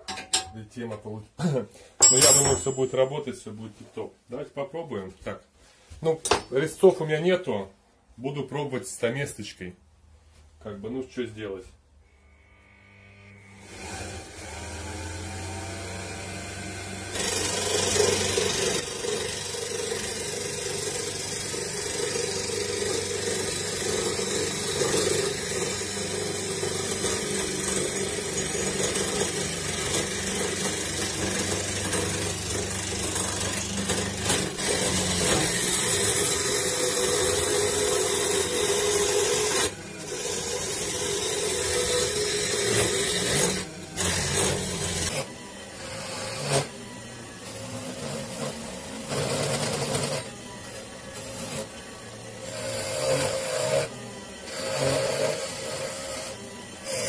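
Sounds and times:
wood chisel scraping on lathe: 0:12.1 - 0:50.3, 0:51.1 - 0:57.0
electric motor humming: 0:12.2 - 0:57.0.

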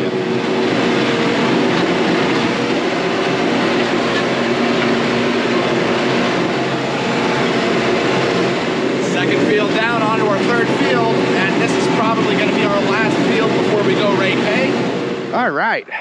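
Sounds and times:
tractor engine under load: 0:00.0 - 0:15.4
harrow discs working ground: 0:00.0 - 0:15.6.

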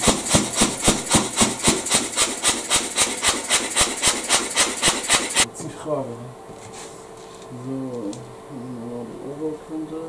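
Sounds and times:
air compressor clacking: 0:00.0 - 0:05.5.

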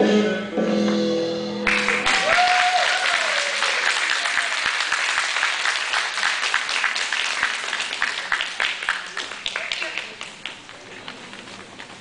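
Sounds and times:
music: 0:00.0 - 0:02.1
audience applause: 0:01.7 - 0:12.0.

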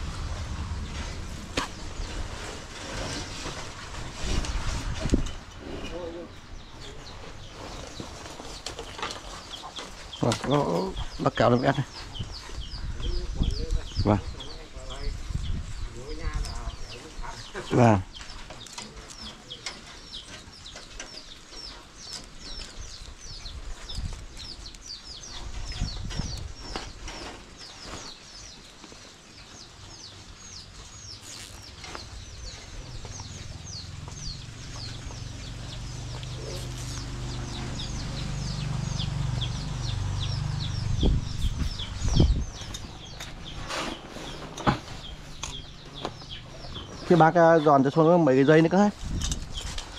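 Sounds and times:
low engine hum: 0:00.0 - 0:03.9, 0:32.0 - 0:47.0
bird chirping: 0:05.2 - 0:49.9.

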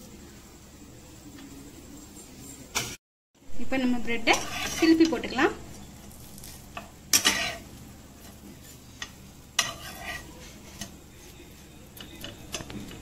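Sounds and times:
butter sizzling: 0:03.7 - 0:13.0
spatula scraping frying pan: 0:04.2 - 0:05.4, 0:06.0 - 0:11.4.

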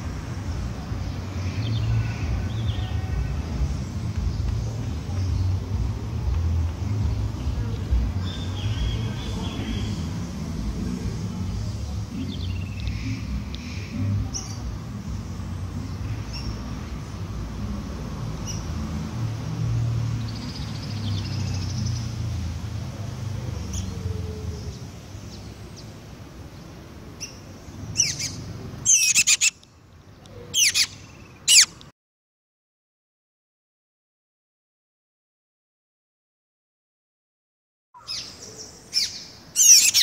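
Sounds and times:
bird chirping: 0:27.2 - 0:31.8, 0:38.0 - 0:40.0.

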